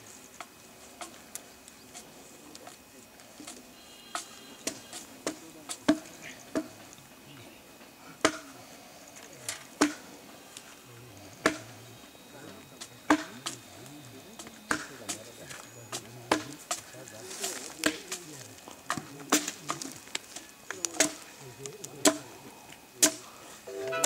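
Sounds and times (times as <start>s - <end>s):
axe chopping wood: 4.7s - 6.7s, 8.2s - 8.5s, 9.8s - 10.0s, 11.4s - 11.7s, 13.1s - 13.6s, 14.4s - 15.2s, 16.3s - 16.8s, 17.6s - 18.2s, 18.9s - 20.0s, 20.9s - 21.2s, 22.0s - 22.2s, 23.0s - 23.2s.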